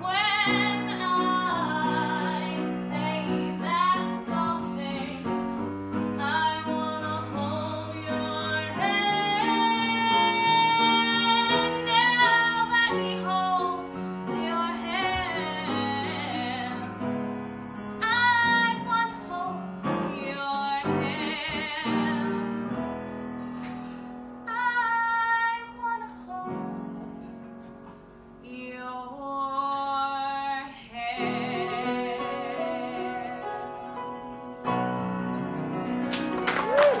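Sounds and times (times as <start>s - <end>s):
woman singing: 0.0s - 17.1s, 17.9s - 22.8s, 24.4s - 27.0s, 28.4s - 34.3s
piano accompaniment: 0.0s - 37.0s.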